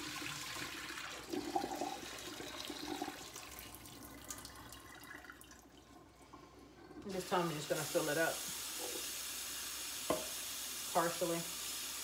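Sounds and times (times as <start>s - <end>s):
tap running into sink: 8.8s - 9.1s, 10.0s - 10.4s.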